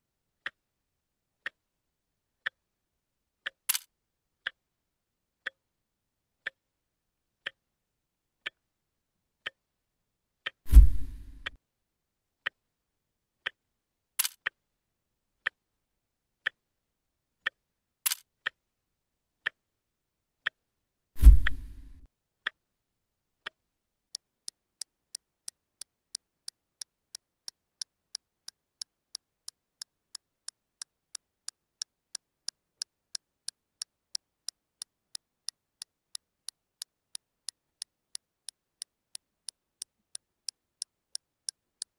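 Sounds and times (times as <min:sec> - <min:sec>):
clock ticking: 0:02.4 - 0:02.6, 0:03.4 - 0:04.6, 0:08.4 - 0:08.6, 0:24.4 - 0:41.9
sharp clicks: 0:03.7 - 0:03.9.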